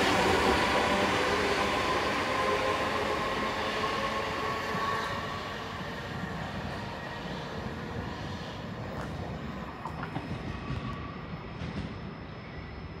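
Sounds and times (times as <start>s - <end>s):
train low rumble: 0.0s - 13.0s.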